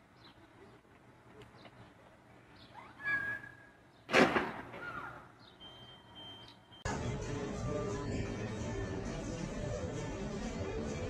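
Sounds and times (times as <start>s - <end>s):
faint bird chirps: 4.8s - 6.9s.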